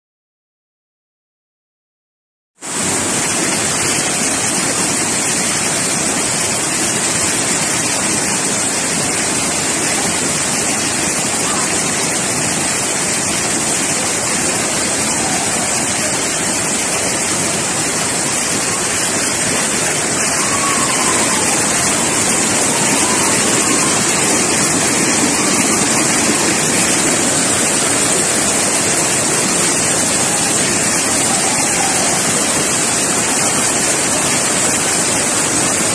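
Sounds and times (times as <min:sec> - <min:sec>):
stream rushing over boulders: 0:02.6 - 0:35.9
waterfall roaring: 0:02.6 - 0:35.9.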